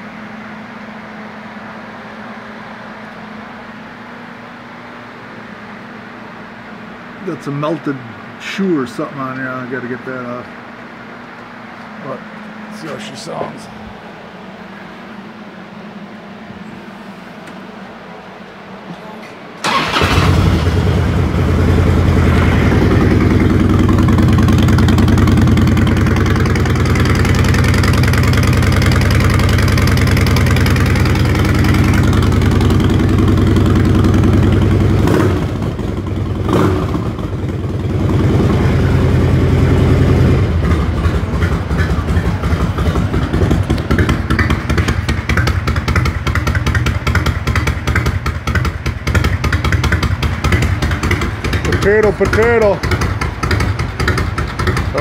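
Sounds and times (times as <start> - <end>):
motorcycle engine idling: 19.7 - 55.0.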